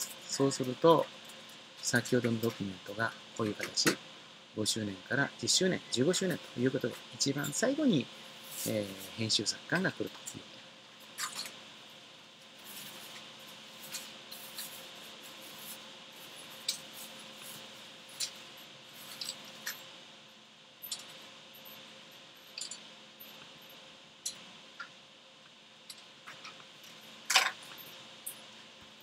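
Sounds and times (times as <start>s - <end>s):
faint steady hum: 0.0s - 29.0s.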